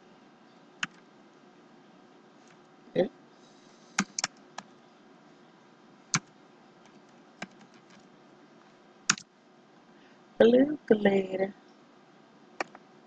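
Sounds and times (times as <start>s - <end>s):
keyboard typing: 0.8s - 1.0s, 4.0s - 4.7s, 6.1s - 8.1s, 9.1s - 9.3s, 12.6s - 12.8s.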